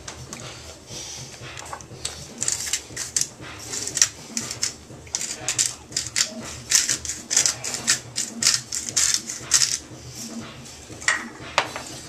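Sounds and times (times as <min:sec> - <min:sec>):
seasoning shaker rattling: 0:02.4 - 0:09.8.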